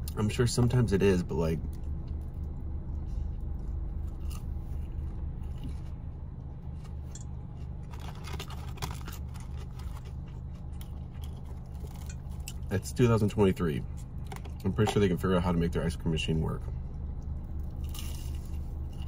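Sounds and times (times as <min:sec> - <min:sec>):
chewing crispy fried chicken: 0:01.6 - 0:12.8, 0:16.8 - 0:19.0.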